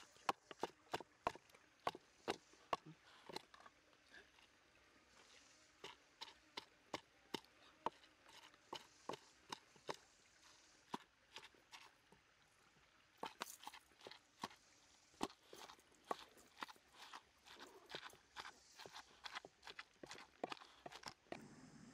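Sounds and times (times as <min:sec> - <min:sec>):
pestle pounding in wooden mortar: 0:00.1 - 0:03.5, 0:05.8 - 0:10.0, 0:15.2 - 0:21.4.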